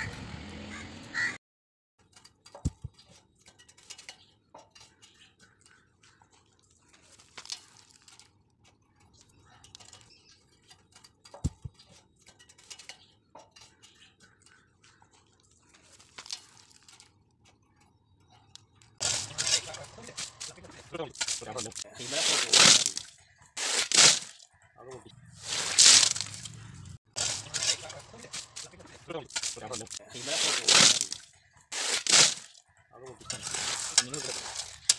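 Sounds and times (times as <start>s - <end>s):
small metal clinks and taps: 2.0s - 19.0s.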